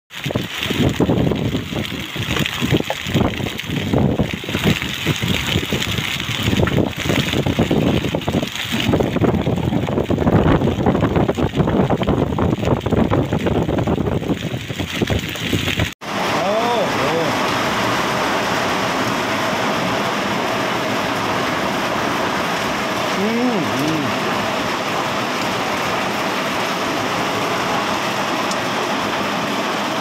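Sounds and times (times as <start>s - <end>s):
hail and heavy rain pelting: 0.1s - 30.0s
wind buffeting microphone: 0.2s - 16.0s.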